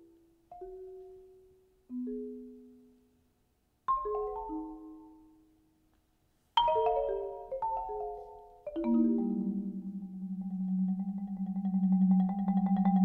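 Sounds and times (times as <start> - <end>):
marimba struck with mallets: 6.6 - 13.0.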